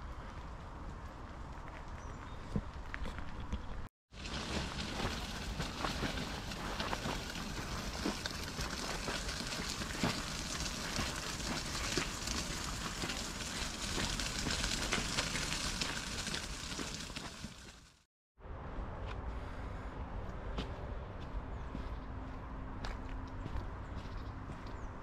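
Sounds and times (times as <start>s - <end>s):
wheels rolling over gravel: 0.0s - 18.1s.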